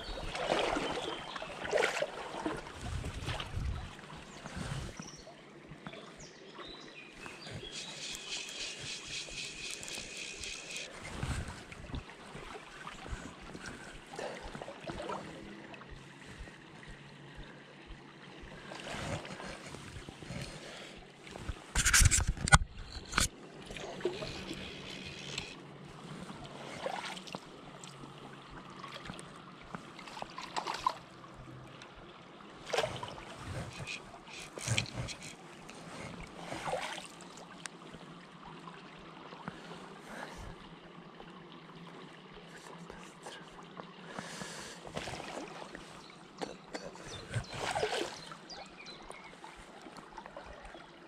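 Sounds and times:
stream water running: 0:00.0 - 0:51.0
wind rumbling on microphone: 0:02.6 - 0:05.2, 0:07.3 - 0:13.9
rapid ratcheting buzz: 0:07.7 - 0:10.9.

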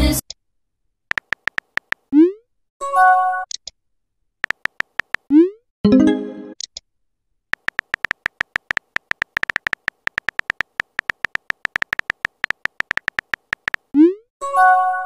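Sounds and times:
phone keyboard typing clicks: 0:01.1 - 0:02.1, 0:04.4 - 0:05.3, 0:07.6 - 0:13.9.

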